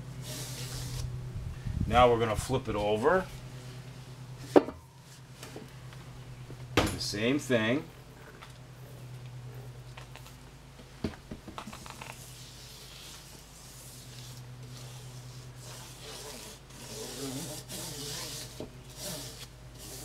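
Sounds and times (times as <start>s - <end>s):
fingers rubbing rubber tire: 11.7s - 20.0s.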